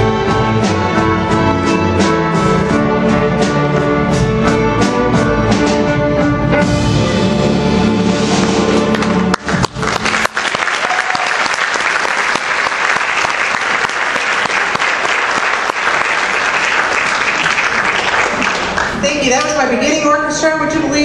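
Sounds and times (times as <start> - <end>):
audience applauding: 8.8 - 19.2.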